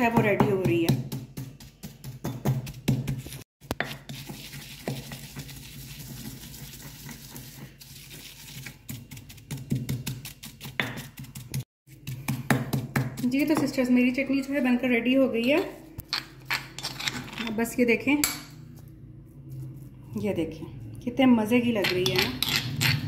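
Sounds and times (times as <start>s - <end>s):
pestle pounding in stone mortar: 0.0s - 5.1s, 8.9s - 13.8s
pestle scraping and rubbing: 0.0s - 5.4s, 6.5s - 14.5s.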